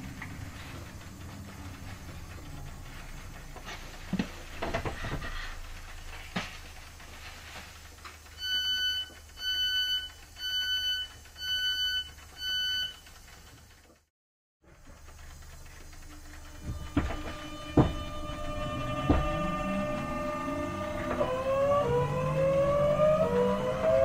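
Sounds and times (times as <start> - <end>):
knocks and clatter: 0.0 - 8.4, 14.6 - 21.4
low train hum: 0.0 - 13.8, 14.6 - 24.0
train door warning beeps: 8.4 - 13.0.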